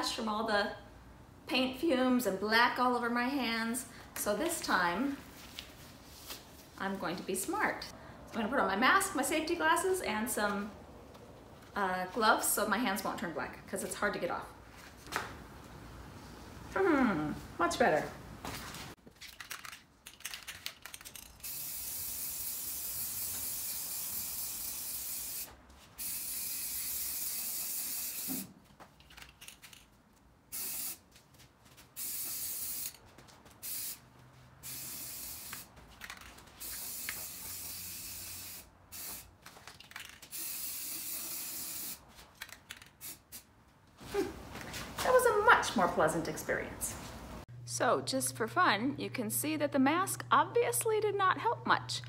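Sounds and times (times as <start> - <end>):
aerosol spray can hissing: 21.4 - 28.5, 30.5 - 31.0, 32.0 - 33.0, 33.6 - 34.0, 34.6 - 35.7, 36.6 - 39.3, 40.3 - 42.0, 43.0 - 43.5.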